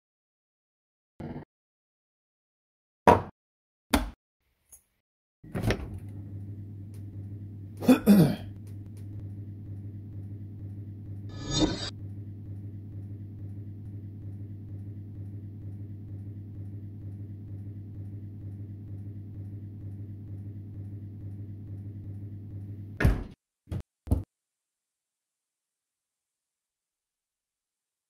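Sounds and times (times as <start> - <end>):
low steady hum: 5.5 - 23.0.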